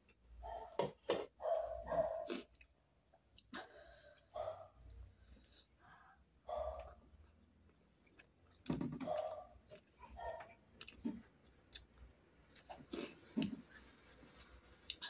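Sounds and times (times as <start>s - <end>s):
chewing mouth noises: 9.2s - 13.6s.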